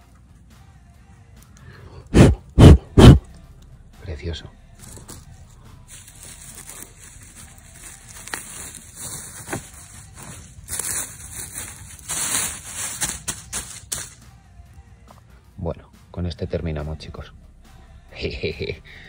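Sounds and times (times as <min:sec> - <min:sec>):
hand rustling pine needles: 0:05.9 - 0:14.2.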